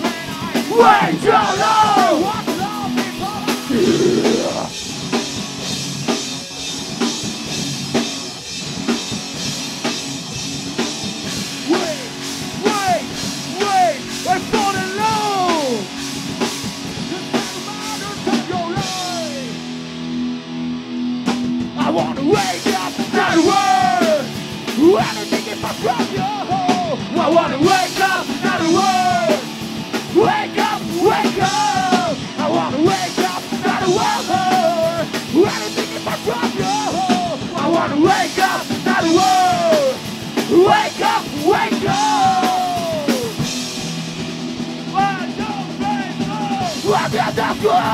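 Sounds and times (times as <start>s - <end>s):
person singing lead vocal: 0.0s - 4.8s, 21.8s - 29.5s, 30.1s - 43.5s, 44.9s - 47.9s
drum kit: 0.0s - 20.3s, 21.0s - 47.9s
electric guitars: 0.0s - 47.9s.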